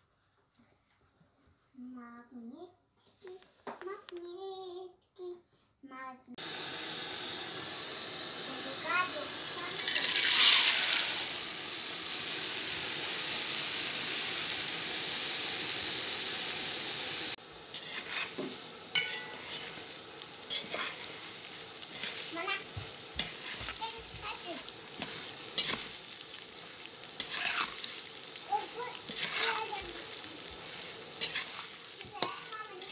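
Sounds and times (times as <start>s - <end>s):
noodles sizzling in hot oil: 6.4s - 32.9s
spatula scraping a pot: 17.7s - 19.8s, 20.5s - 26.0s, 27.1s - 32.9s.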